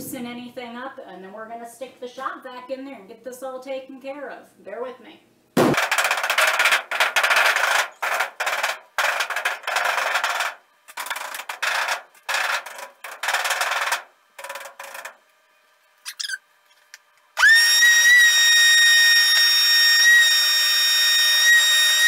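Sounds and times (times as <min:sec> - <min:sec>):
sheet-metal ducts banged and rubbed: 0:05.8 - 0:15.2.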